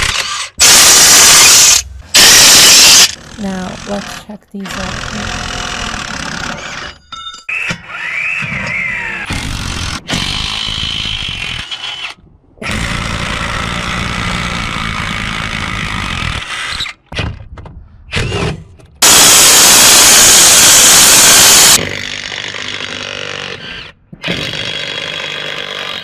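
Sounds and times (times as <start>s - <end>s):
wrench motor whine: 0.0s - 3.3s, 7.6s - 9.3s, 19.0s - 26.0s.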